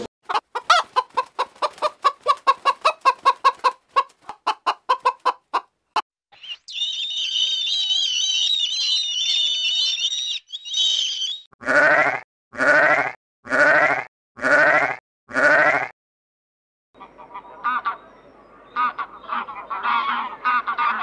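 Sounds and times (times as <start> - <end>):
gulls chattering: 6.3 - 11.5, 17.0 - 21.0.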